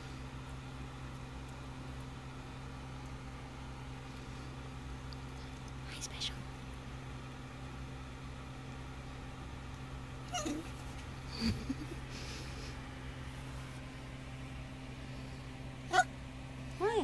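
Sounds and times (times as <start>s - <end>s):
steady low background hum: 0.0s - 17.0s
small dog whining: 10.2s - 10.8s, 15.9s - 16.1s.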